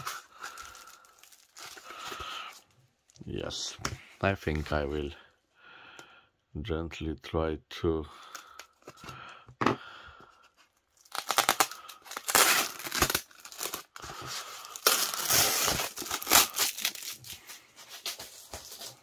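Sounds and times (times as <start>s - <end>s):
packing tape peeling off foam: 11.0s - 14.0s, 14.6s - 18.8s.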